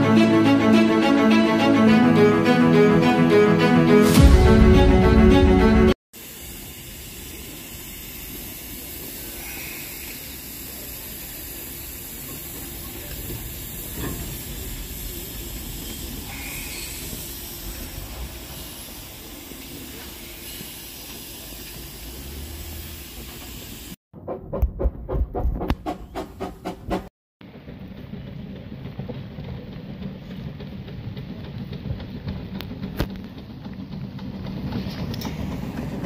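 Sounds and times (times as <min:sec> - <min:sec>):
music: 0:00.0 - 0:06.0
short puffs of steam: 0:06.2 - 0:24.0
steam locomotive hissing: 0:06.2 - 0:24.0.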